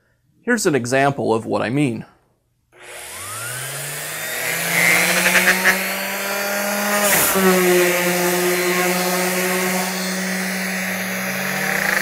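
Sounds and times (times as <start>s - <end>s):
orbital sander spinning: 2.8s - 12.0s
sander scraping on wood: 2.8s - 12.0s.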